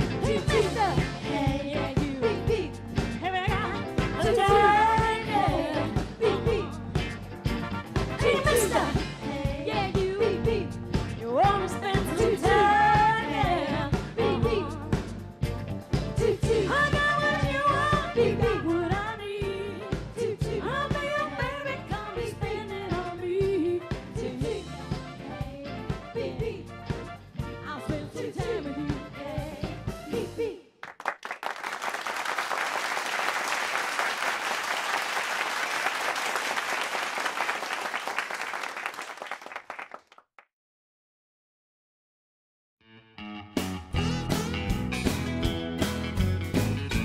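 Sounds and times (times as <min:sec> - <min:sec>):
pop band playing: 0:00.0 - 0:30.4, 0:43.3 - 0:47.0
audience applause: 0:30.8 - 0:40.3.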